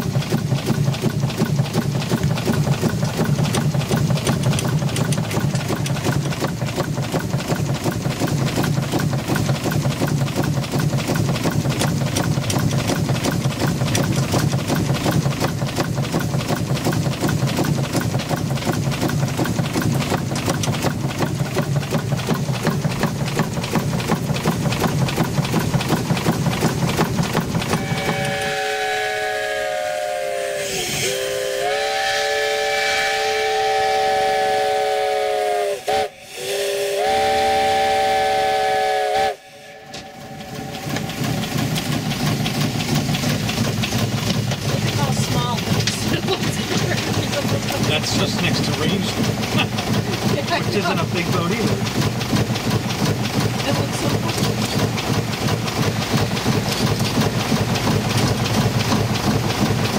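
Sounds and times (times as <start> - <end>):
steam engine beating: 0.0 - 59.9
steam whistle chord: 27.7 - 40.8.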